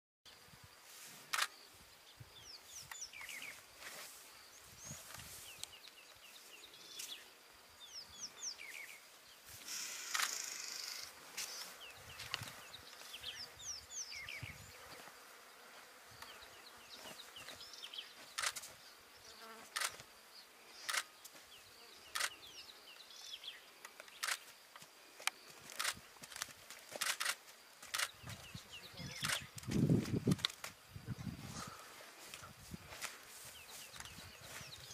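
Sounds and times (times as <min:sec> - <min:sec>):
faint insect hum: 0:00.3 - 0:34.9
sharp clicks: 0:18.4 - 0:18.6, 0:19.7 - 0:20.0, 0:23.8 - 0:24.5, 0:25.2 - 0:28.2, 0:29.2 - 0:30.7.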